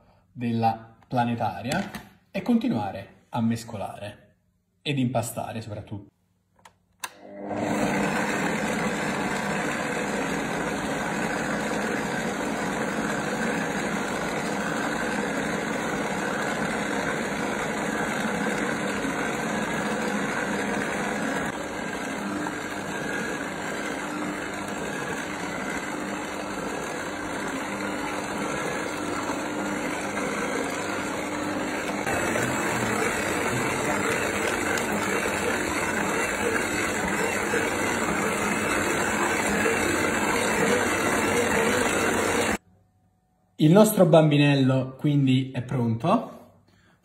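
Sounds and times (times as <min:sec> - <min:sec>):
stand mixer motor running: 0:07.1 - 0:42.6.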